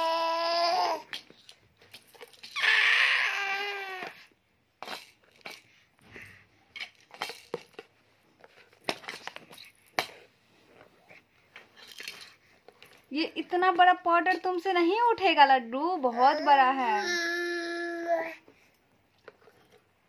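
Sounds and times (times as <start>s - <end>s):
baby squealing: 2.6s - 4.2s.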